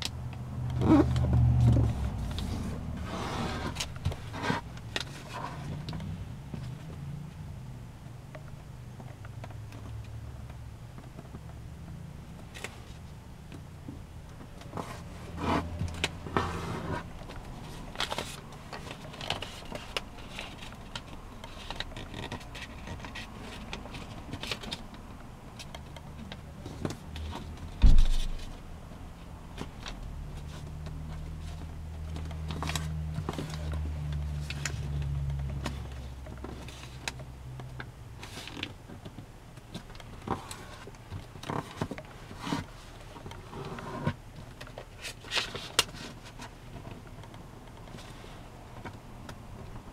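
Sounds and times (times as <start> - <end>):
paper rustling and crinkling: 14.6 - 25.0.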